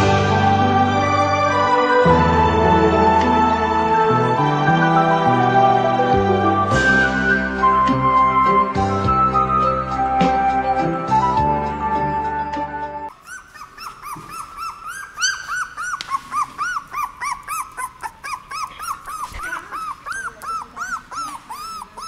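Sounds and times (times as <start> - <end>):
background music: 0.0 - 13.1
puppy whimpering: 13.1 - 22.0.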